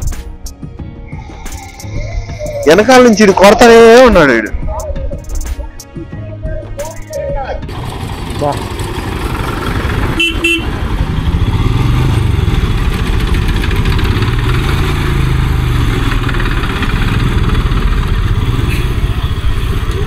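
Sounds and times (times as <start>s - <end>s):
motorcycle engine running: 7.6s - 20.0s
vehicle horn toots: 10.0s - 10.9s, 18.3s - 19.2s.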